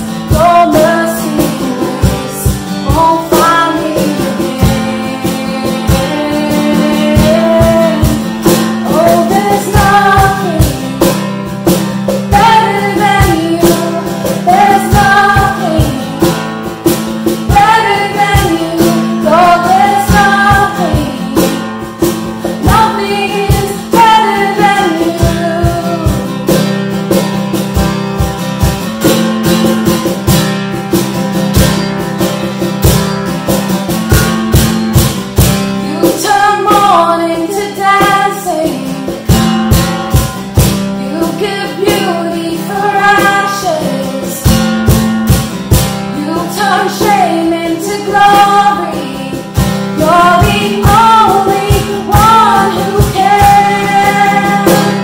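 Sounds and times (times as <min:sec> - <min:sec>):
women singing a worship song: 0:00.0 - 0:11.5, 0:12.1 - 0:26.6, 0:35.8 - 0:39.4, 0:41.0 - 0:44.6, 0:46.0 - 0:55.0
cajon beat: 0:00.0 - 0:55.0
strummed acoustic guitar: 0:00.0 - 0:55.0.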